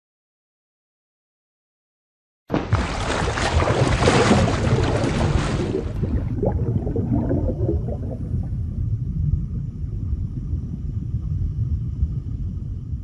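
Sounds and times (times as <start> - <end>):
bubbling: 2.5 - 10.2
low underwater rumble: 2.5 - 13.0.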